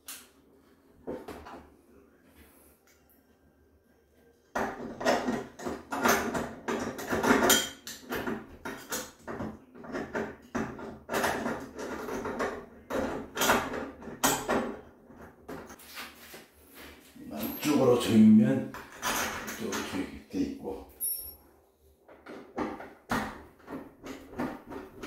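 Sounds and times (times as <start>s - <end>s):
metal handle parts clinking: 20.9s - 21.4s.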